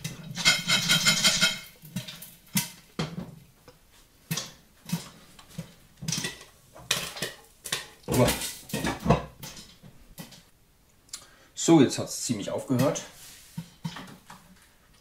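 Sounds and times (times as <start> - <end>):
metal pot scraping and rattling: 0.0 - 3.2, 4.3 - 9.8.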